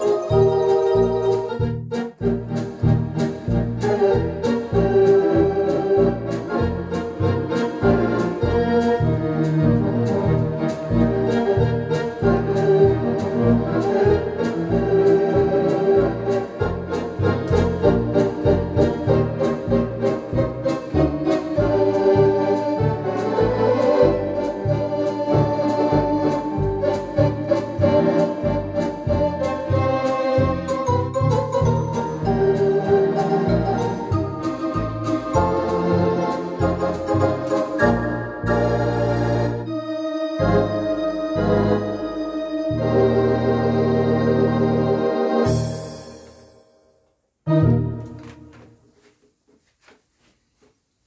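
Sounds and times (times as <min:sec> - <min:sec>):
pulsing bass notes: 0:00.0 - 0:39.8
electronic organ playing: 0:00.0 - 0:46.2, 0:47.5 - 0:48.3.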